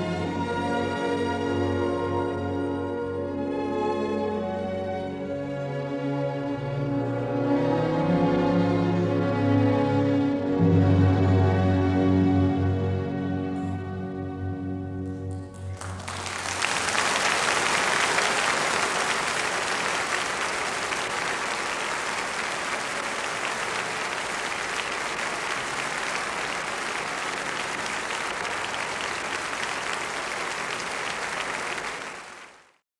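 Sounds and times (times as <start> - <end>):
audience applauding: 15.2 - 32.8.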